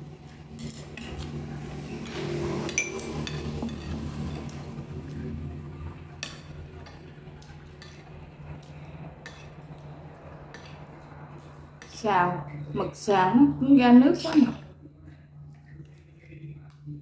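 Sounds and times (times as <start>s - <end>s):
low steady hum: 0.0s - 17.0s
utensils clinking on ceramic bowls: 2.0s - 4.6s.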